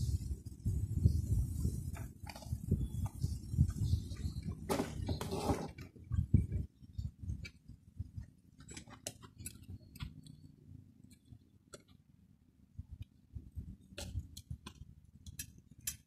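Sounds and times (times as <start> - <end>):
light metal clicks and ticks: 13.9 - 16.0.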